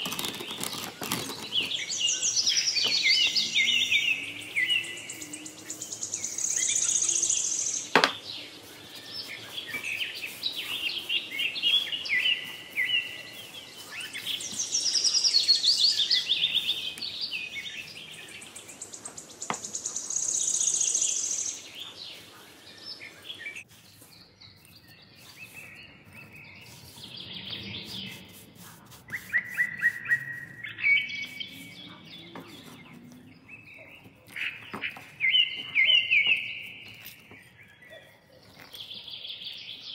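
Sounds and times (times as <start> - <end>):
songbirds chirping and trilling: 0.0 - 39.9
sharp knocks: 8.0 - 8.2.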